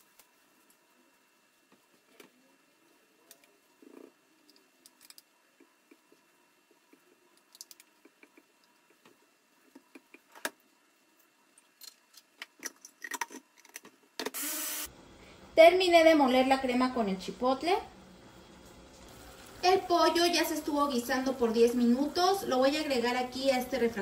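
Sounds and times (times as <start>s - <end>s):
burst of steady noise: 14.3s - 24.0s.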